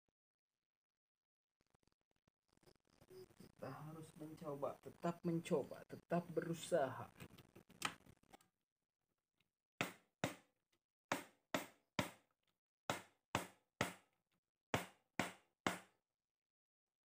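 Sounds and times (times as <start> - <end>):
hammer striking metal tool: 11.1 - 12.2.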